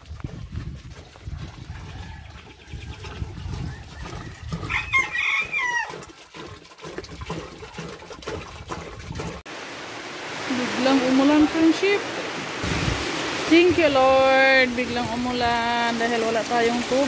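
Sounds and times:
water glugging into plastic drum: 0.0s - 9.4s
rooster crowing: 1.7s - 2.5s, 4.6s - 6.0s.

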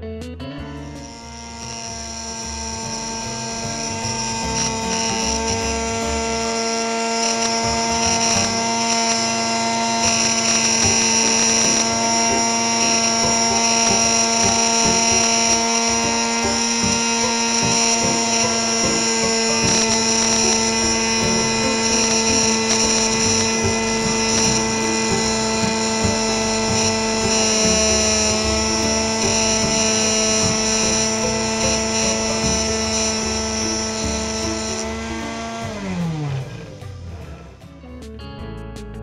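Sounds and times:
grinder motor whining: 0.6s - 37.7s
chisel grinding on wheel: 0.8s - 37.5s.

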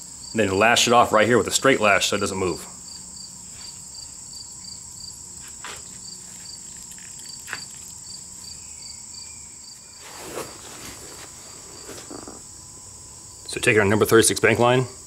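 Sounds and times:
insects chirping: 0.0s - 15.0s
rustle of wood and bark: 5.4s - 8.8s, 9.7s - 12.4s.

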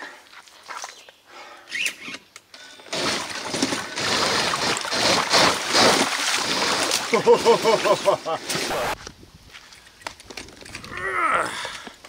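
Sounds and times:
tyres splashing through water: 2.9s - 9.0s.

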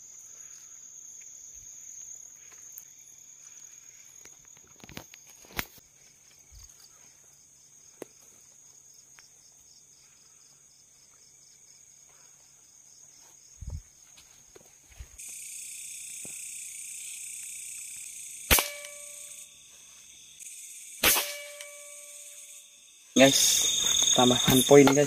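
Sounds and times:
insects chirring high-pitched: 0.0s - 25.0s
rapid pulsing insect call: 0.0s - 25.0s.

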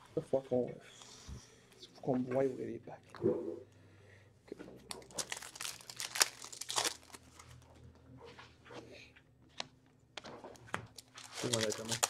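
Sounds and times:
card pack wrappers crinkling: 5.0s - 7.4s, 11.0s - 12.0s.

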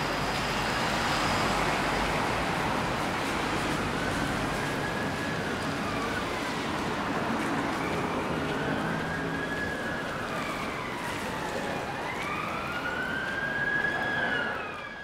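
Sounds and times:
traffic: 0.0s - 15.0s
siren wailing: 7.7s - 15.0s.

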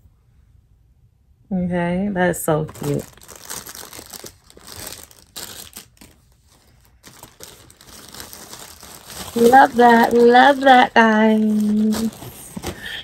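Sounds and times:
plastic bag crinkling: 2.6s - 13.0s.

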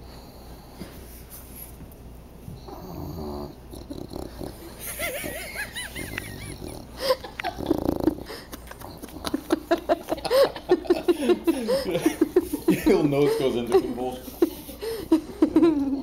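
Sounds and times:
dog snoring and wheezing: 2.6s - 5.0s, 6.0s - 8.5s
person laughing: 4.8s - 16.0s.

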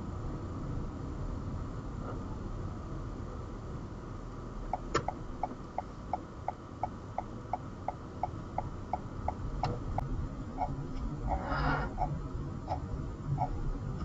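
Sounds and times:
low cabin rumble: 0.0s - 14.0s
turn signal ticking: 4.7s - 14.0s.

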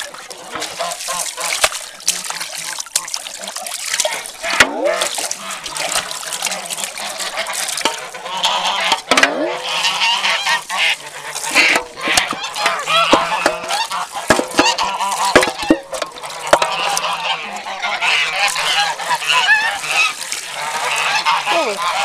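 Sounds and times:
geese honking and cackling: 0.0s - 22.0s
sharp knocks: 11.7s - 16.7s.

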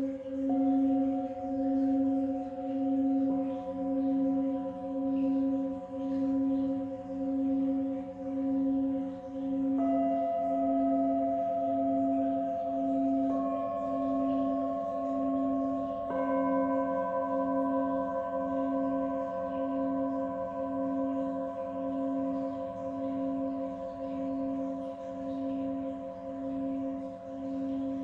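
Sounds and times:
low wavering bowl tone: 0.0s - 28.0s
singing bowls struck with mallet: 0.0s - 28.0s.

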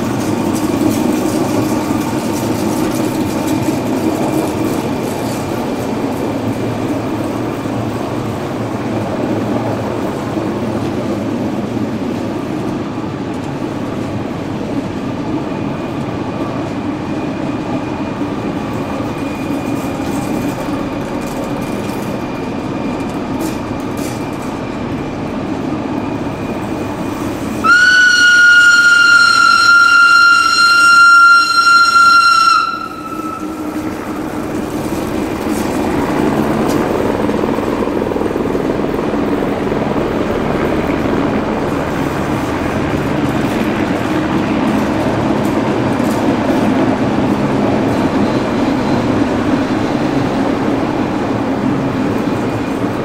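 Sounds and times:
train wheels rolling: 0.0s - 53.0s
train horn blast: 27.6s - 34.4s.

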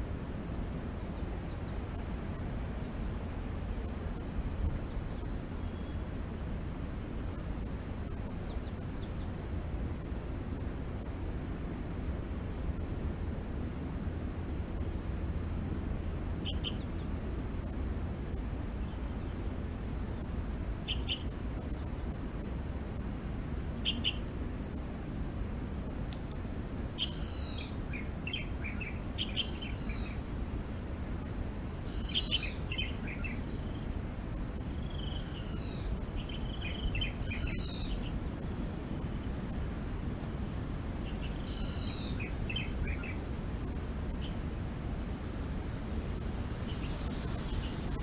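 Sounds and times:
high-pitched insect drone: 16.2s - 22.6s, 25.9s - 40.1s, 40.7s - 48.0s
bird chirping: 16.4s - 17.1s, 20.9s - 21.3s, 23.8s - 24.2s, 27.0s - 30.2s, 31.9s - 33.8s, 34.9s - 38.2s, 41.0s - 43.2s, 46.6s - 48.0s.

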